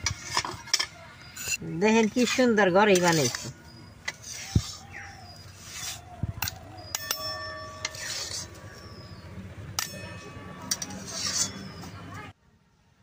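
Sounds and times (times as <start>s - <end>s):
metal spatula scraping paste: 0.0s - 12.0s
spatula clinking against metal pan: 6.4s - 12.0s.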